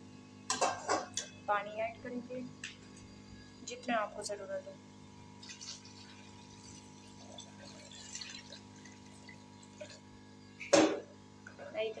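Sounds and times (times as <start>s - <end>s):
steady low hum: 0.0s - 12.0s
water splashing into pan: 5.4s - 10.0s.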